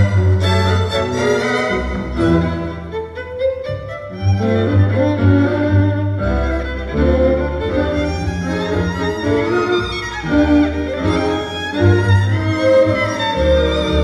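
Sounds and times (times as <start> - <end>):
string ensemble playing tango: 0.0 - 14.0.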